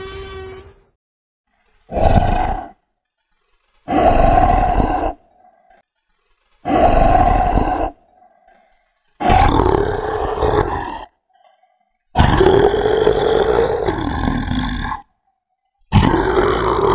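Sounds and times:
dinosaur growls: 0:01.9 - 0:02.9, 0:03.8 - 0:05.8, 0:06.6 - 0:15.3, 0:15.9 - 0:16.9.

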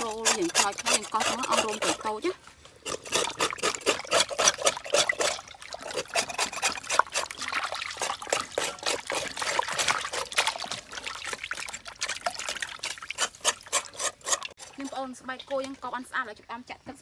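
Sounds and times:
knife scraping skin: 0:00.0 - 0:07.4, 0:13.1 - 0:14.6
water splashing and trickling: 0:00.0 - 0:17.0.

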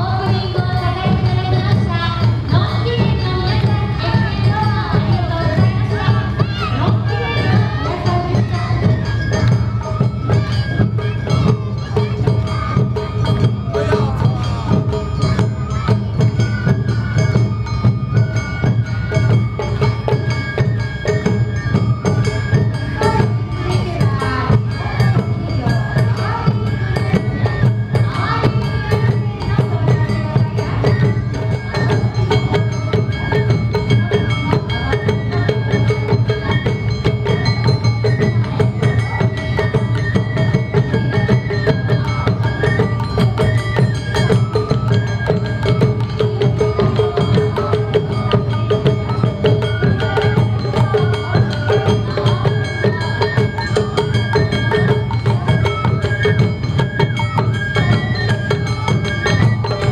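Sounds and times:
bamboo flutes melody: 0:00.0 - 0:59.9
clacking percussion: 0:00.0 - 0:59.9
shamisen: 0:00.0 - 0:59.9.

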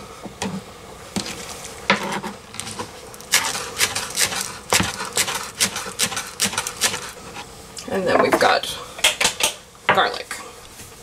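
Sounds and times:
knife chopping on plastic board: 0:03.3 - 0:07.0.

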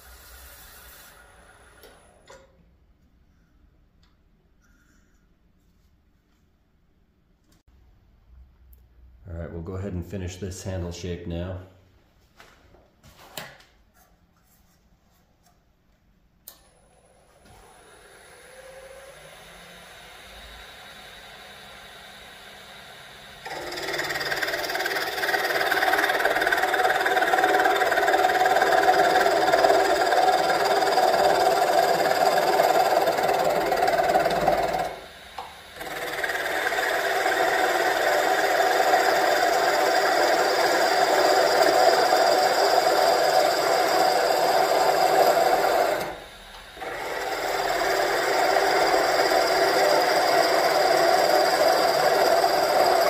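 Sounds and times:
lathe running: 0:17.5 - 0:53.0
lathe tool cutting wood: 0:23.4 - 0:53.0.

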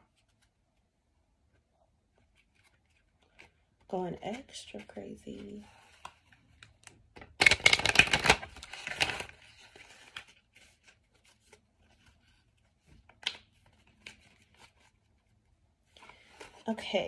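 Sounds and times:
cards riffling: 0:05.9 - 0:12.2.

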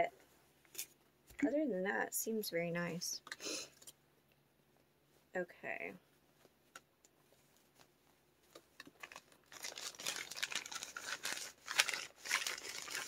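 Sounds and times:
packaging crinkling and rustling: 0:07.6 - 0:13.0.

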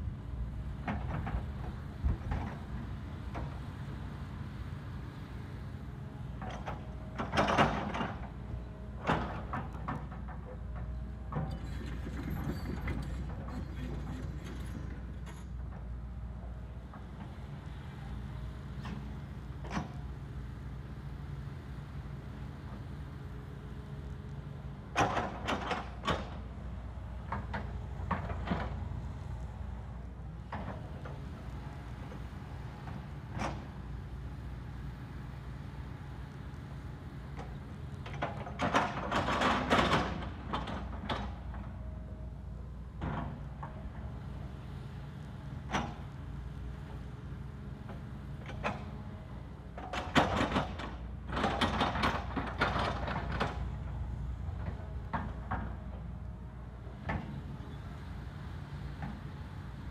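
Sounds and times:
excavator diesel engine humming: 0:00.0 - 0:59.9.

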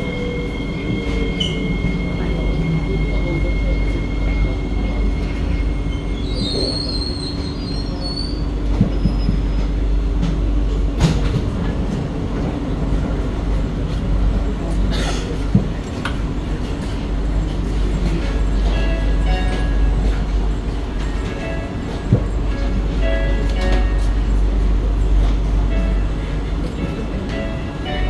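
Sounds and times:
high brake squeal: 0:00.0 - 0:09.5
steady train hum: 0:00.0 - 0:28.0
thin train whine: 0:00.0 - 0:28.0.

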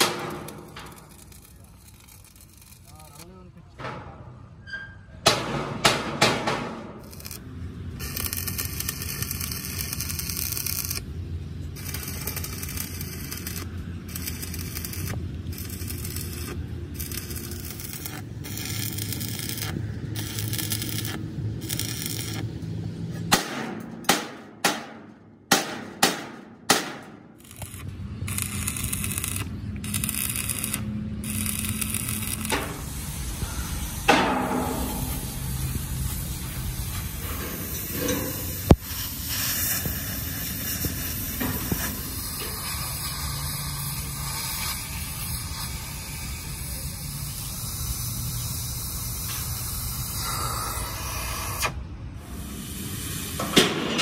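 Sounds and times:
harsh metalworking noise bursts: 0:05.4 - 0:22.6, 0:23.2 - 0:54.0.

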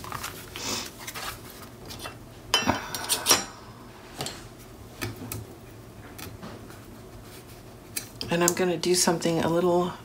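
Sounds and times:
soft paper handling: 0:00.0 - 0:02.1.

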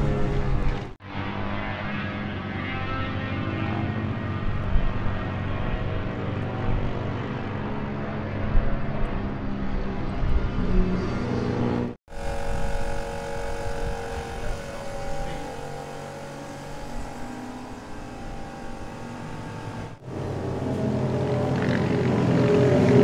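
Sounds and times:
motorcycle engine running: 0:12.1 - 0:23.0.

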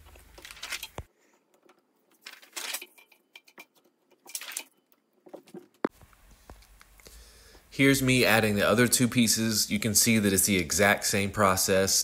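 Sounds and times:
plastic film sheets rustling: 0:00.0 - 0:06.8.

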